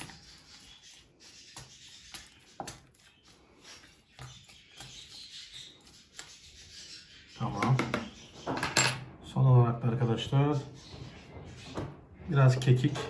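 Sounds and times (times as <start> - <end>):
hand kneading wet mash: 0.0 - 7.7.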